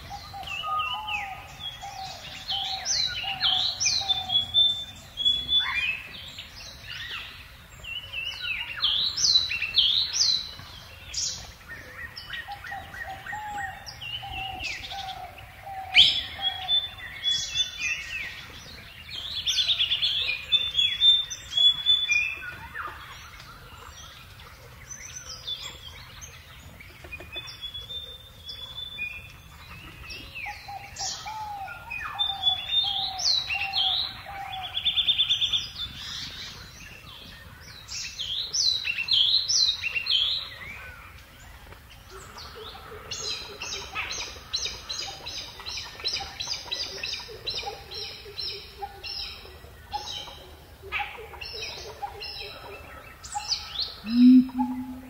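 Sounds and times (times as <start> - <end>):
birds chirping and singing: 0.0 - 55.0
bird repeating notes: 54.0 - 55.0.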